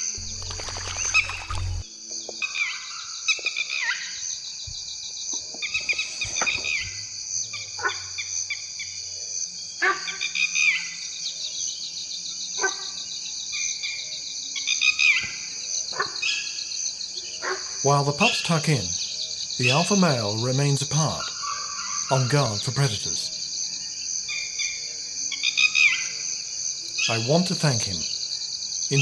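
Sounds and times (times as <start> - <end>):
descending bird calls: 0.0 - 1.9, 15.1 - 23.5
pulsing insect chorus: 0.0 - 29.0.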